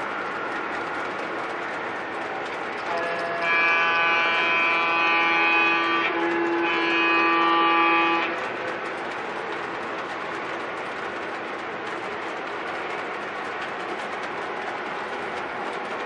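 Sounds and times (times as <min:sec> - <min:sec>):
model train cars rumbling on track: 0:00.0 - 0:16.0
chime-like train horn blasts: 0:02.9 - 0:08.4.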